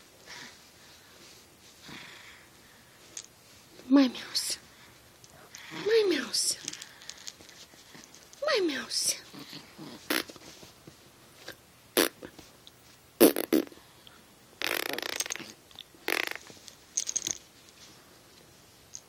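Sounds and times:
small dog grunting and snorting: 9.2 - 10.3.

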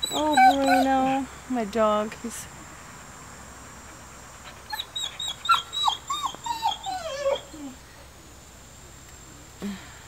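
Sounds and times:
dog whining: 0.0 - 1.2, 4.5 - 7.8.

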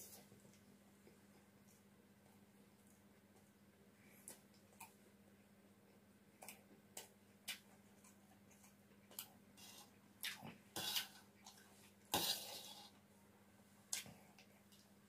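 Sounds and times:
faint steady hum: 0.0 - 15.0
spoon scraping on metal plate: 10.8 - 11.2, 12.2 - 13.0.

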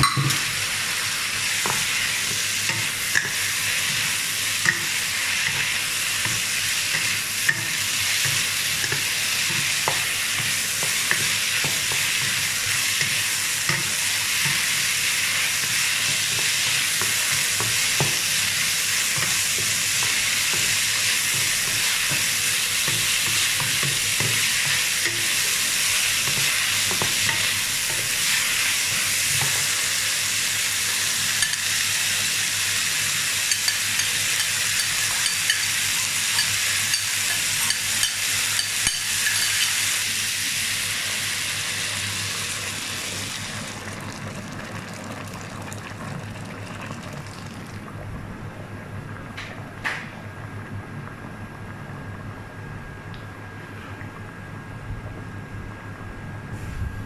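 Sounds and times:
food sizzling in a wok: 0.0 - 47.5
spatula scraping and tapping pan: 1.6 - 12.4.

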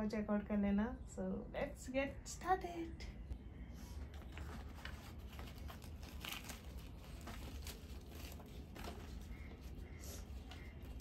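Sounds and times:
fried bread crackling as torn: 5.6 - 8.8.

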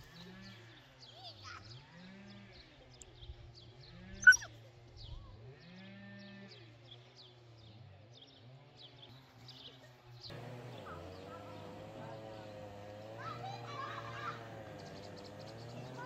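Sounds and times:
faint high chirping: 4.2 - 4.5
sharp squeal: 4.2 - 4.5.

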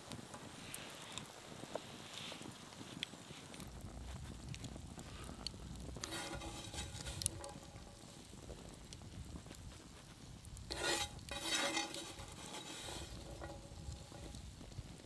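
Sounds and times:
spoon scraping metal pot: 6.0 - 8.2, 10.7 - 14.5.

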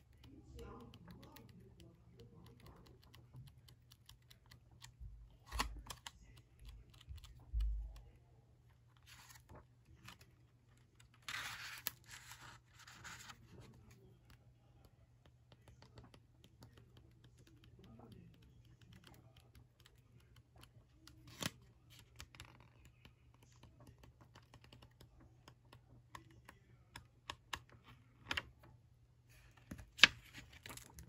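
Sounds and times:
paper pages rustling: 9.0 - 14.0, 29.3 - 31.0.

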